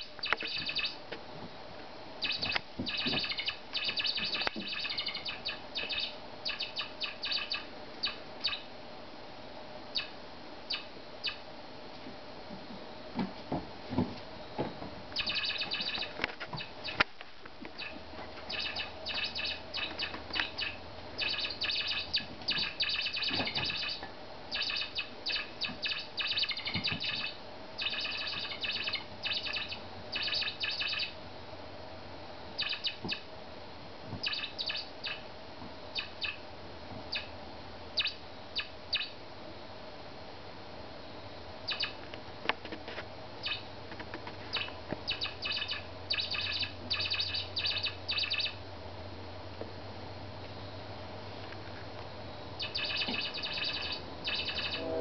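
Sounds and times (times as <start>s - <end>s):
toy mouse squeaking: 0.0s - 1.0s, 2.2s - 8.6s, 15.2s - 17.0s, 17.8s - 31.1s, 34.2s - 35.2s, 41.7s - 41.9s, 44.5s - 48.5s, 52.6s - 54.8s.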